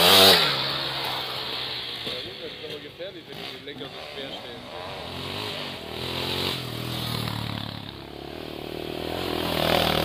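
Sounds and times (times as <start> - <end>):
quad engine revving: 0.0 - 10.0.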